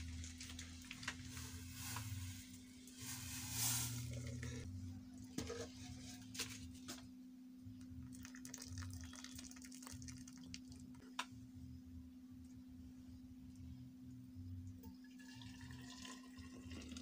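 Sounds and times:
tea trickling through strainer: 8.1 - 10.8, 15.1 - 17.0.

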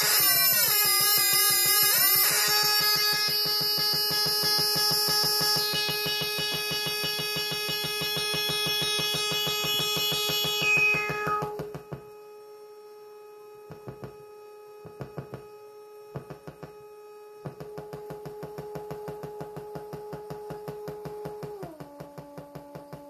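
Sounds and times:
steady electronic tone: 0.0 - 12.2.

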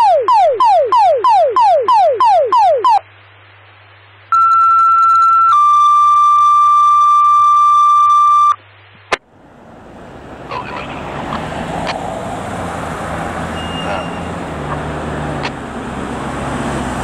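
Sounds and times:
steady low hum: 5.6 - 13.4
two-tone radio page: 10.5 - 11.4.

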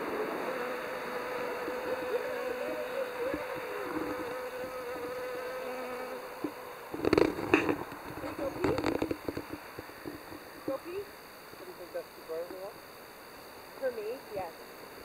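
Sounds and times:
bee buzzing in flight: 0.0 - 15.0.

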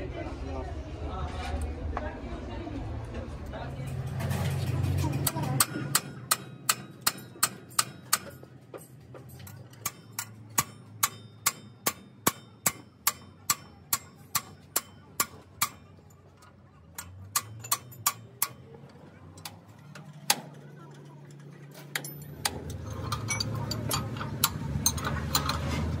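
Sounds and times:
wrench clicking on bolt: 5.2 - 8.5, 9.4 - 20.6, 21.3 - 25.7.

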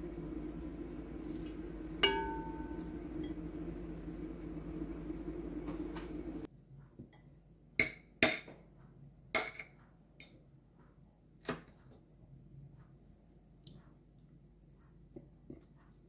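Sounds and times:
low hum: 0.0 - 6.5
fork clinking on ceramic plate: 2.0 - 2.9.

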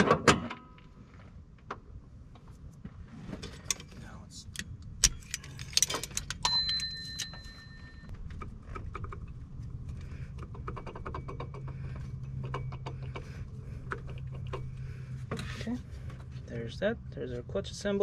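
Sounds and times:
steady low hum: 0.8 - 18.0
light clicks and rattles: 3.5 - 7.4
metal tools clinking: 5.0 - 8.1.

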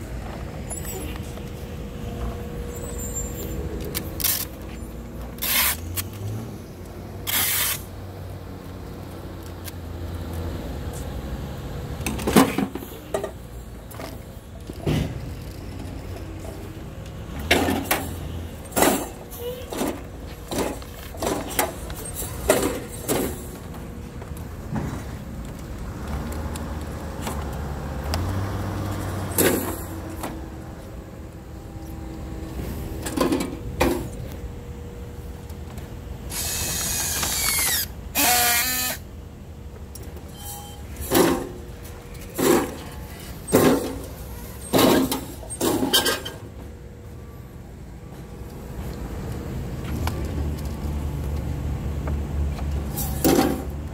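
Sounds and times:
strapping tool motor rising: 5.4 - 6.5, 7.2 - 7.9, 36.3 - 39.0.

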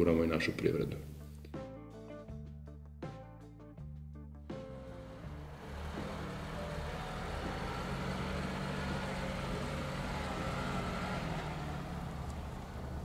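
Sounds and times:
car engine driving slowly past: 4.6 - 13.0.

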